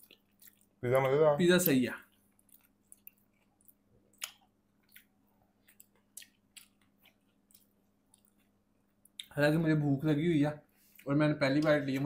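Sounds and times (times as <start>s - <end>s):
person chewing food: 0.0s - 9.3s.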